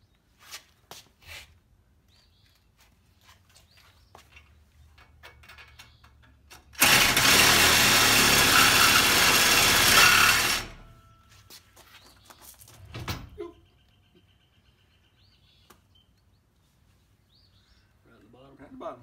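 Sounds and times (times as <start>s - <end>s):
reciprocating saw cutting steel: 6.8s - 10.9s.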